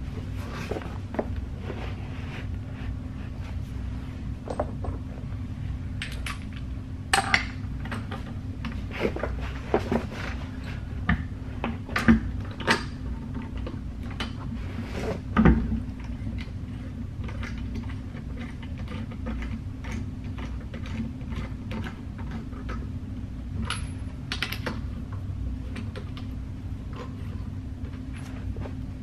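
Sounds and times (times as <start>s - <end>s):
low hum: 0.0s - 18.4s.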